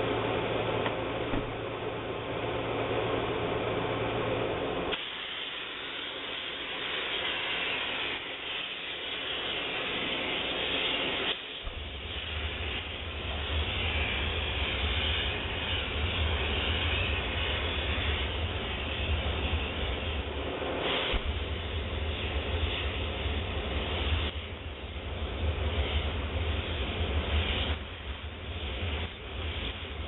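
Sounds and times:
low machine hum: 0:00.0 - 0:05.0, 0:11.6 - 0:30.0
steam hissing: 0:00.0 - 0:30.0.

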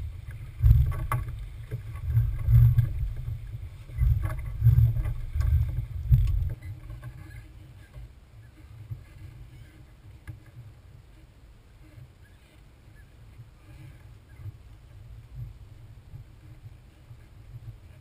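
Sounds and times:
wind buffeting microphone: 0:00.0 - 0:06.7.

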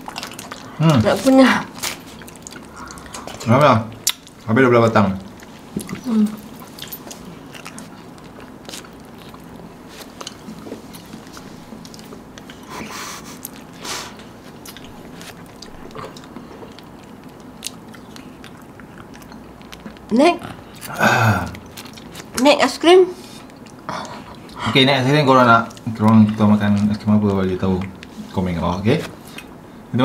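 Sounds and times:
people biting and chewing: 0:00.0 - 0:22.4.

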